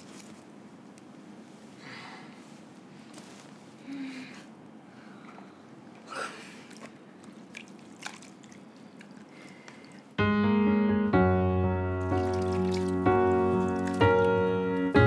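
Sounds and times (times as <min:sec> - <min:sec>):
water drips and splashes: 0:06.7 - 0:10.2, 0:12.0 - 0:14.4
background keyboard music: 0:10.2 - 0:15.0.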